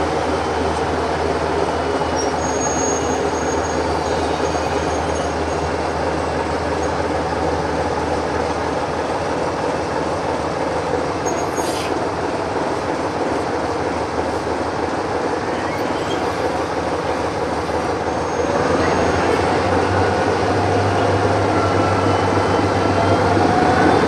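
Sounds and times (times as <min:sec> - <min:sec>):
wheel squeals on rails: 0:02.0 - 0:05.7, 0:15.5 - 0:16.5
short hiss: 0:11.6 - 0:12.0.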